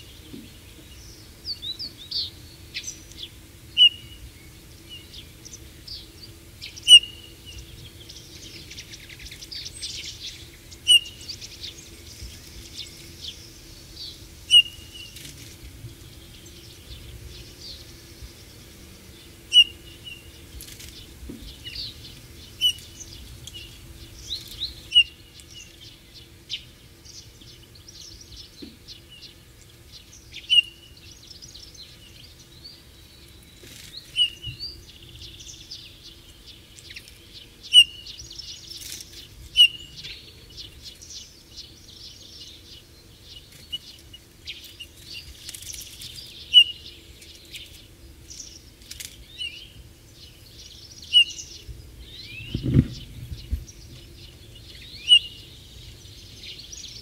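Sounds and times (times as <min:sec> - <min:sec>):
bird piping calls: 0:03.7 - 0:04.2, 0:06.6 - 0:07.6, 0:08.4 - 0:11.8, 0:14.0 - 0:15.2, 0:19.4 - 0:20.3, 0:21.4 - 0:25.8, 0:30.2 - 0:30.8, 0:34.1 - 0:34.8, 0:37.7 - 0:38.6, 0:39.5 - 0:40.7, 0:46.3 - 0:47.6, 0:50.9 - 0:54.0, 0:54.6 - 0:55.7
bird twittering: 0:03.8 - 0:04.2, 0:06.7 - 0:07.3, 0:08.7 - 0:11.7, 0:14.0 - 0:15.2, 0:19.5 - 0:20.3, 0:21.5 - 0:25.7, 0:34.1 - 0:35.6, 0:37.7 - 0:38.7, 0:39.5 - 0:40.2, 0:46.3 - 0:46.9, 0:50.9 - 0:53.9, 0:54.6 - 0:55.7.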